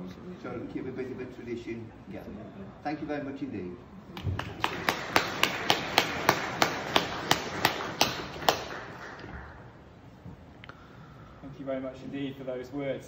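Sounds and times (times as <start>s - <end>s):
single person clapping: 4.2s - 9.5s
audience applauding: 4.2s - 9.8s.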